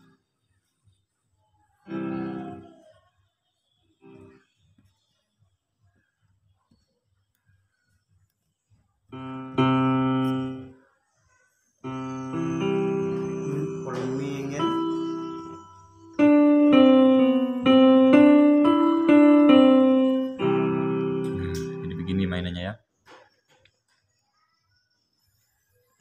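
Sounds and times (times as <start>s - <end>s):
keyboard chords and notes: 1.9s - 2.8s, 4.0s - 4.4s, 9.1s - 10.8s, 11.8s - 22.5s.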